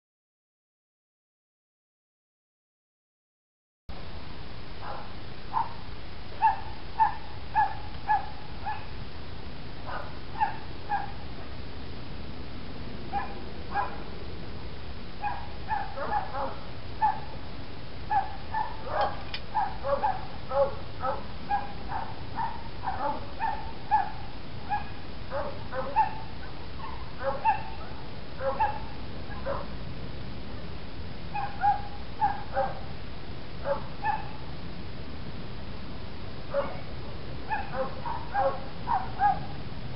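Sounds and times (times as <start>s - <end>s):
background hiss: 3.9s - 39.9s
dog yapping and barking: 4.8s - 5.8s, 6.4s - 8.9s, 9.9s - 11.2s, 13.1s - 14.0s, 15.2s - 17.3s, 18.1s - 29.7s, 31.3s - 32.8s, 33.6s - 34.4s, 36.5s - 36.9s, 37.5s - 39.6s.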